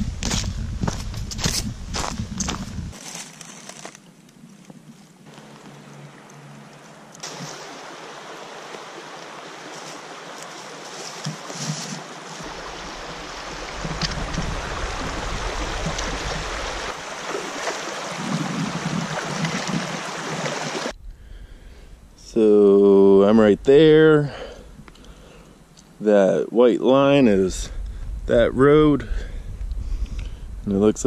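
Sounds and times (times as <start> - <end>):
river water rushing over rocks: 7.2 - 20.9
splashing footsteps wading: 7.2 - 20.9.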